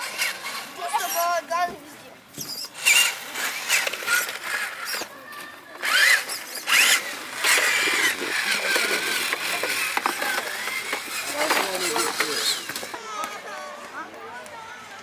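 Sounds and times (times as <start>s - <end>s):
toy truck motor whine: 2.4s - 13.1s.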